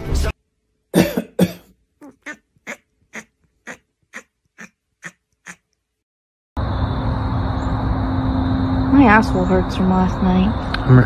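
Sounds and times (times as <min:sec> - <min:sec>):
cat coughing: 0:01.0 - 0:03.3
low hum: 0:06.6 - 0:11.0.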